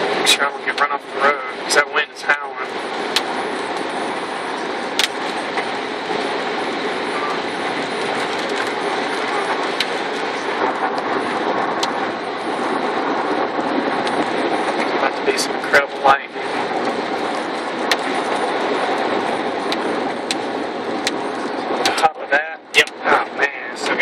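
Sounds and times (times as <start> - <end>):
road and wind noise in car: 0.0 - 24.0
sharp ticks against car: 3.1 - 3.9, 5.0 - 5.3, 19.7 - 20.4.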